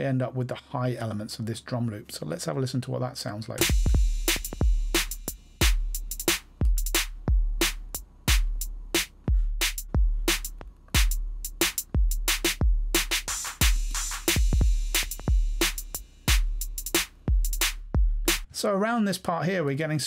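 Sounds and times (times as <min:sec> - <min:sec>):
deep kick drum hits: 0:03.6 - 0:18.4
hi-hat and snare strokes: 0:03.6 - 0:18.5.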